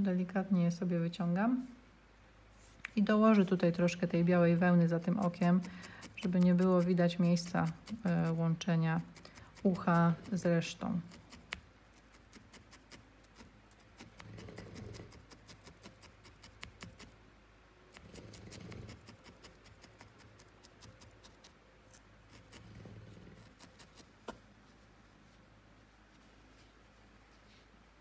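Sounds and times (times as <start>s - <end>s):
felting needle stabbing wool: 2.8s - 17.2s, 17.9s - 22.8s, 23.4s - 24.5s.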